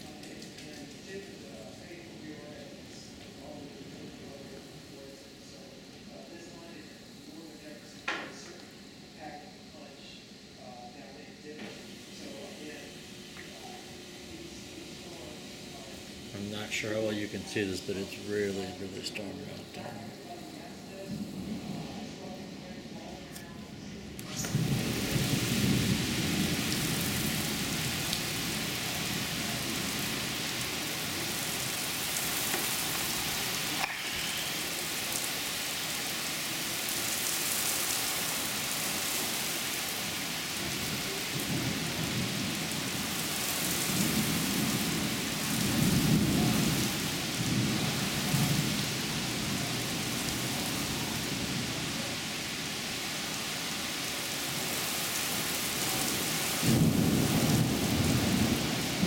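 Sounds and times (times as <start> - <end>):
heavy rain on wooden deck: 0.0 - 59.0
thunder rumbling: 17.4 - 22.7, 24.0 - 36.0, 40.0 - 53.1, 55.7 - 59.0.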